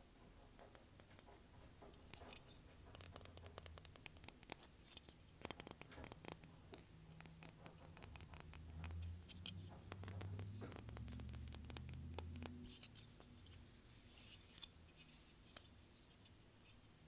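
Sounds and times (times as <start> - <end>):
fingers tapping on seashells: 2.1 - 12.8.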